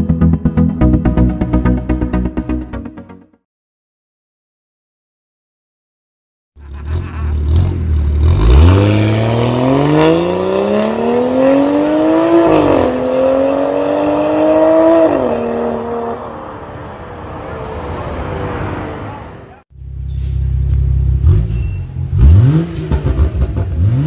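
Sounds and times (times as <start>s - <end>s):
car accelerating hard: 6.8s - 19.6s, 22.1s - 24.0s.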